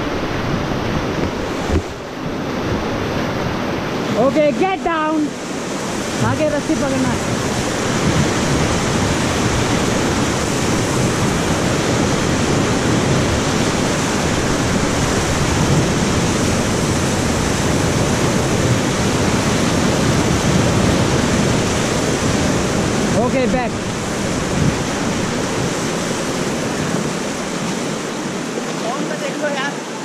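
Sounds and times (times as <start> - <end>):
river rapids rushing: 0.0 - 30.0.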